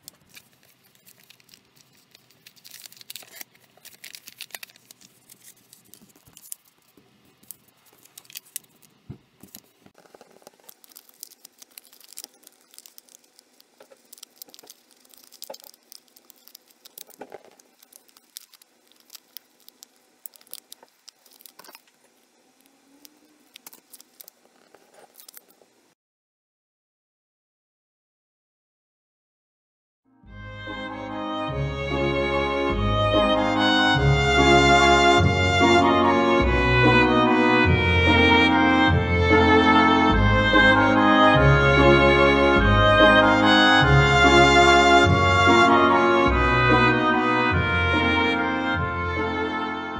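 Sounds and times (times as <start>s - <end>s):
paper rustling and crinkling: 0.0s - 22.2s, 23.5s - 25.7s.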